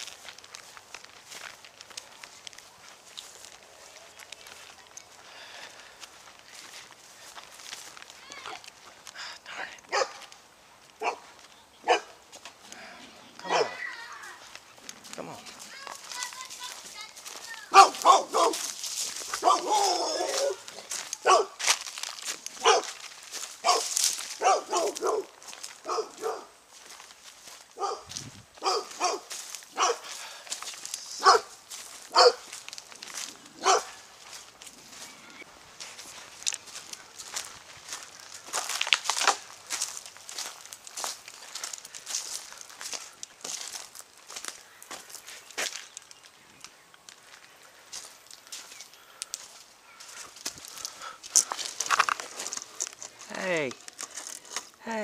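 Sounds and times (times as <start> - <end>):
dog barking: 9.9 - 10.3, 11.0 - 11.2, 11.8 - 12.2, 13.4 - 13.8, 17.7 - 18.7, 19.4 - 21.6, 22.6 - 23.0, 23.6 - 26.6, 27.8 - 30.1, 31.2 - 32.5, 33.6 - 34.0.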